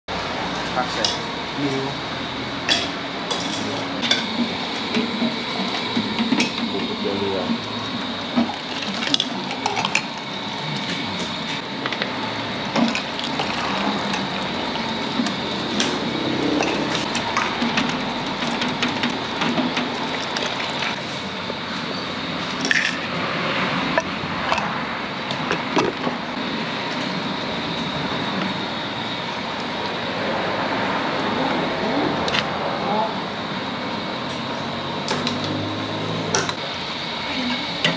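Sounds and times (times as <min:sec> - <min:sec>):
steady background noise: 0:00.1 - 0:37.9
metal utensils clinking on pots: 0:02.7 - 0:04.3.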